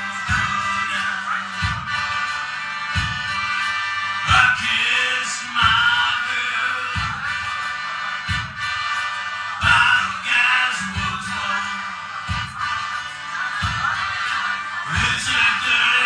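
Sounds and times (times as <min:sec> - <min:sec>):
accordion playing: 0:00.0 - 0:16.0
person singing: 0:00.0 - 0:16.0
low thumping beat: 0:00.2 - 0:04.9, 0:05.5 - 0:06.3, 0:06.9 - 0:07.6, 0:08.2 - 0:08.9, 0:09.6 - 0:11.7, 0:12.3 - 0:13.0, 0:13.6 - 0:15.9.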